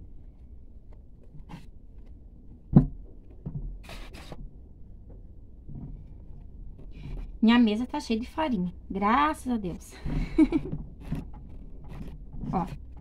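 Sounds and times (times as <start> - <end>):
hands kneading dough: 5.6 - 13.0.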